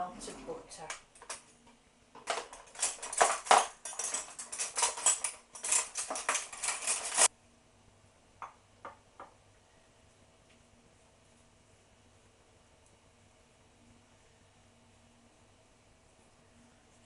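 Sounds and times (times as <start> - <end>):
cutlery clattering in drawer tray: 2.2 - 7.3.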